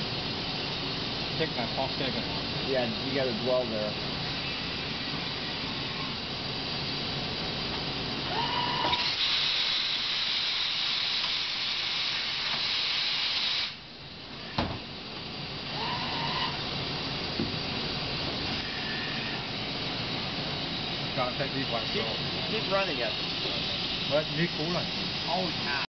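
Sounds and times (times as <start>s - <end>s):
loud hiss: 0.0s - 25.9s
machine hiss: 0.0s - 25.9s
servo whines: 8.2s - 10.1s, 15.7s - 16.8s, 18.3s - 19.7s.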